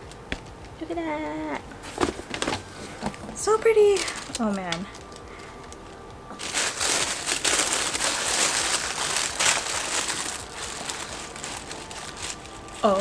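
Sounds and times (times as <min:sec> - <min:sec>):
packaging crinkling: 0:03.5 - 0:13.0.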